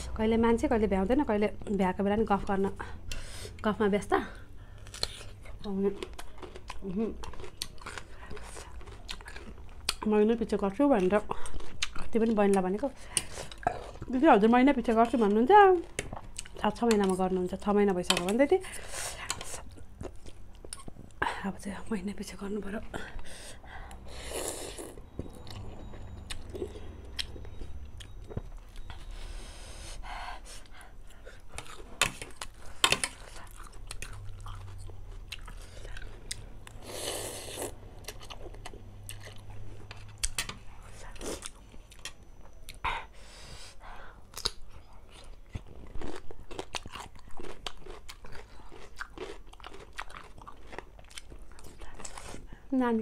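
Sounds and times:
chewing: 4.6 - 10.1, 11.0 - 14.1, 30.6 - 42.8, 44.2 - 52.6.

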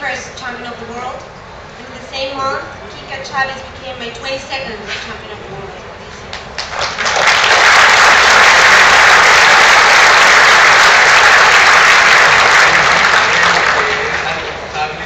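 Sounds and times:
audience applauding: 6.4 - 14.7.

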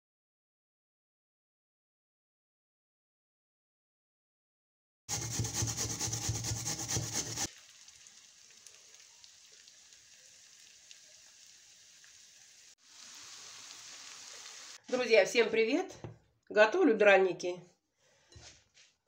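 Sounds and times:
potato grated on hand grater: 5.1 - 7.5.

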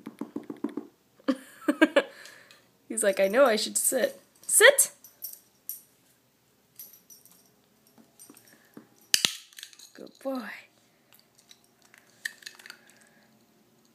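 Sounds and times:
dog collar tag jingling: 3.0 - 5.9, 6.7 - 10.4.

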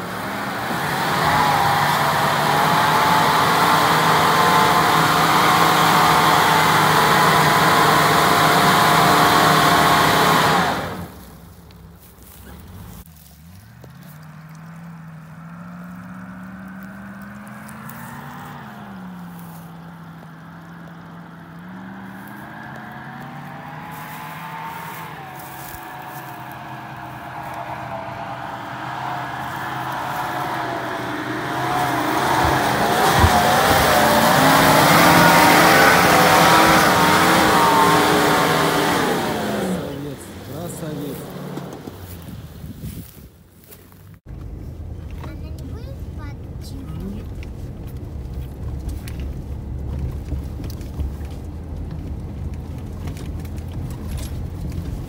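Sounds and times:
vehicle engine under load: 0.0 - 55.0
low thumps: 29.5 - 37.3
knocks and rattles from bumps: 32.2 - 34.6, 47.3 - 55.0.

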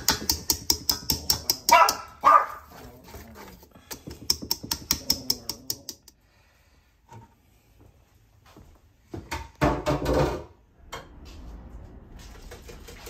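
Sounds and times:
whisk clinking against metal bowl: 0.0 - 2.1
dog barking: 1.7 - 2.8.

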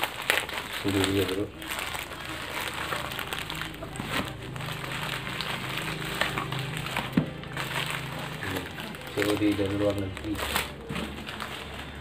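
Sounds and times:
plastic bag rustling and crinkling: 0.0 - 12.0.

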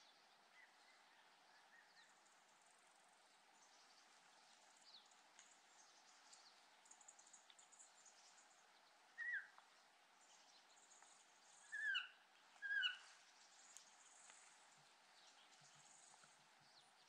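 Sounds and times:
faint steady hiss: 0.0 - 17.0
bird calling with falling notes: 9.2 - 9.6, 11.6 - 13.1.

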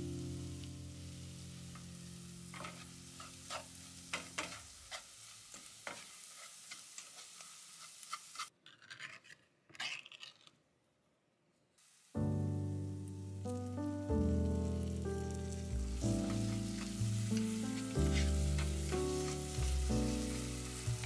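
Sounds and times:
paste sizzling in a pan: 0.0 - 10.3, 11.8 - 21.0
spatula scraping a pan: 2.5 - 10.4, 16.3 - 21.0.

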